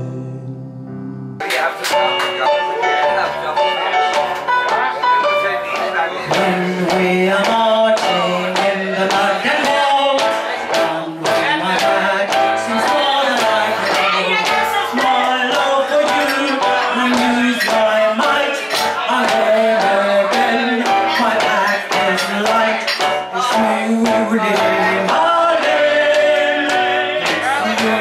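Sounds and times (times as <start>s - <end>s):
instrumental accompaniment with beat: 1.3s - 28.0s
woman singing into microphone: 6.3s - 28.0s.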